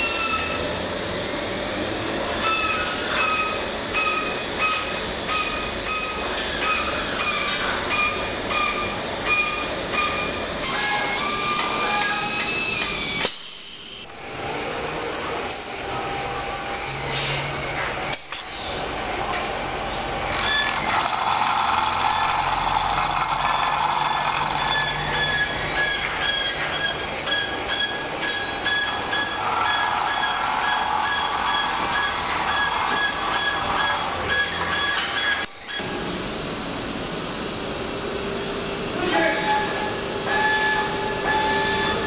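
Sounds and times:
tyre buffing machine grinding: 0:18.6 - 0:35.8.

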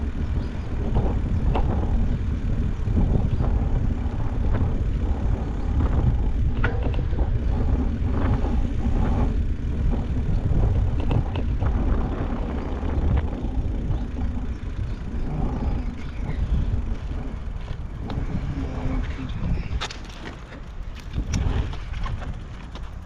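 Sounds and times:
bike tyre noise: 0:00.0 - 0:23.0
wind rumble on microphone: 0:00.0 - 0:23.0
light clicks and rattles: 0:16.0 - 0:23.0.

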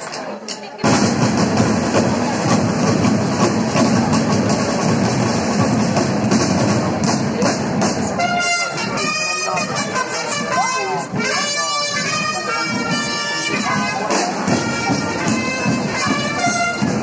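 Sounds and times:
snare drums playing together: 0:00.0 - 0:17.0
wind instrument held notes: 0:07.8 - 0:17.0.

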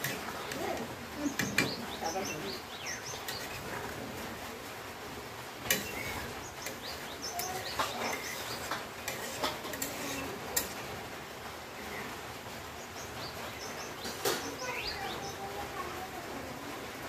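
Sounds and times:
metal spatula scraping a pan: 0:00.0 - 0:00.6, 0:03.1 - 0:04.0, 0:05.6 - 0:10.9
birds chirping: 0:00.0 - 0:04.7, 0:05.4 - 0:11.0, 0:11.6 - 0:16.2.

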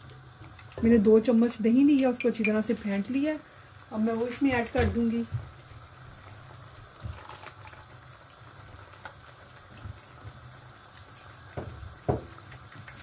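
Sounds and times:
meat bubbling in a pot: 0:00.0 - 0:13.0
knocks: 0:11.6 - 0:12.3.

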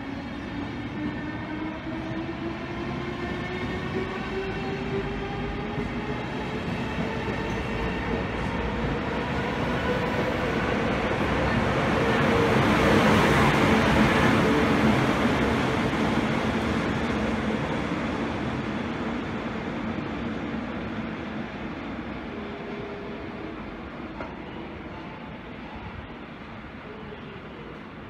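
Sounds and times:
train coaches rolling past: 0:00.0 - 0:28.0.

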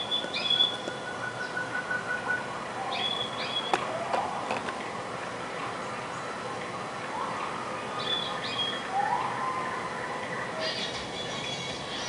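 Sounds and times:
birds chirping and whistling: 0:00.0 - 0:03.8, 0:08.0 - 0:12.0.

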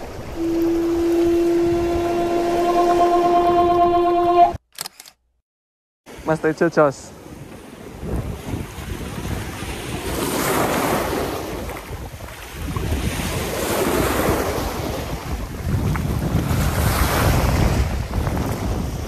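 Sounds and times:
wind buffeting microphone: 0:00.0 - 0:04.2, 0:07.3 - 0:19.0
waves washing over rocky shore: 0:07.7 - 0:19.0.

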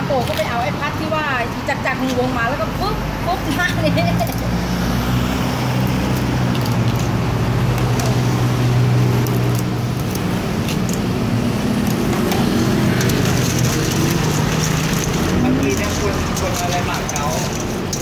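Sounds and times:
vehicle engine humming: 0:00.0 - 0:18.0
scissors snipping crab: 0:06.0 - 0:08.4, 0:09.1 - 0:11.1
spoon in steel bowl: 0:11.9 - 0:18.0.

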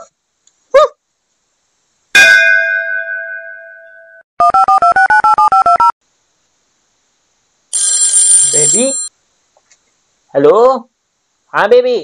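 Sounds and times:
bell-like ding: 0:02.2 - 0:04.2
electronic chime beeps: 0:07.8 - 0:09.1.

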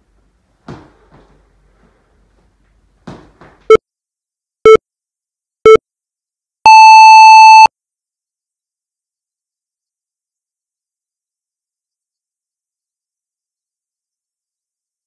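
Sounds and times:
long high timer beep: 0:06.6 - 0:07.7
short timer beeps: 0:06.6 - 0:07.7.

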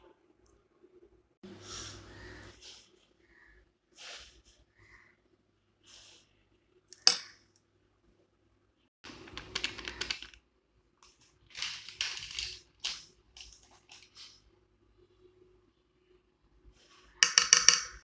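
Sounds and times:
spoon tapping against bowl: 0:17.2 - 0:18.0.

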